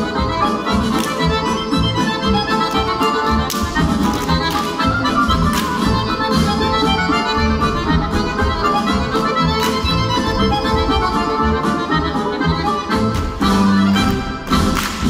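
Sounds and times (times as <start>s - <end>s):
instrumental dance music: 0.0s - 15.0s.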